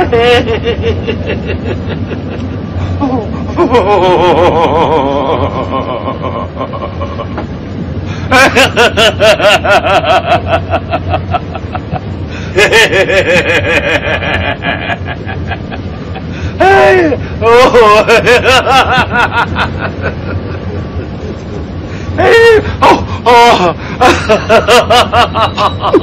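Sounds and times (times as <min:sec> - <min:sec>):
people laughing heartily: 0:00.0 - 0:26.0
steady low rumble: 0:00.0 - 0:26.0.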